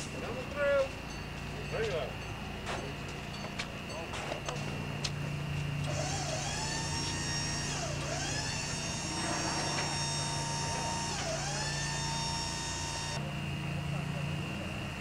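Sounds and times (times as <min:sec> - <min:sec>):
electric motor whine: 0:05.8 - 0:13.2.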